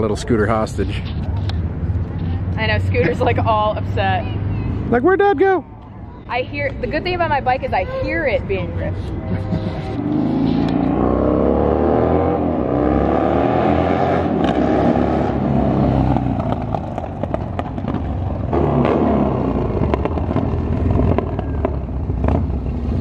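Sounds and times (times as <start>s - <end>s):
motorcycle engine revving: 9.3s - 23.0s.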